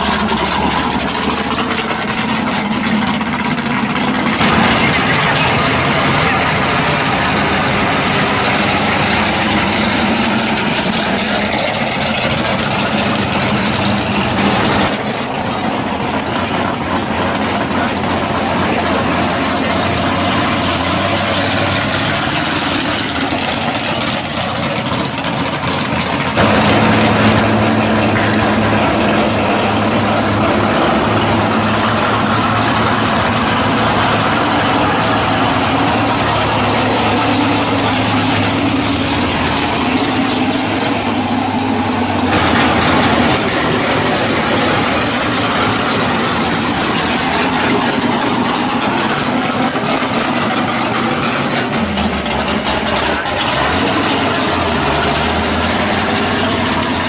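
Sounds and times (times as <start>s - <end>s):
drag race car engines idling: 0.0s - 57.0s.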